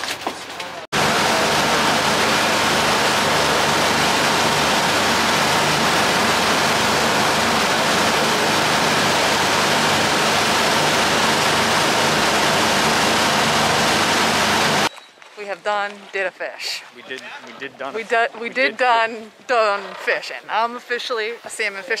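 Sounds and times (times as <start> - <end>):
boat engine hum: 1.0 - 14.9
boat wake churning water: 1.0 - 14.9.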